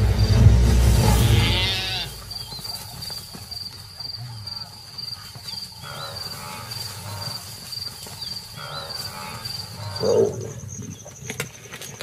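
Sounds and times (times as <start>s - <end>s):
crickets chirping: 0.0s - 12.0s
animal calls: 4.2s - 10.9s.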